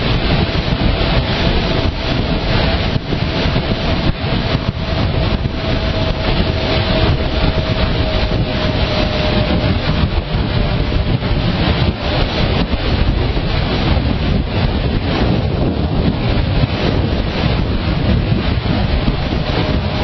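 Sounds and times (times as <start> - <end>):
motorcycle engine and road noise: 0.0 - 20.0
wind buffeting microphone: 0.0 - 20.0.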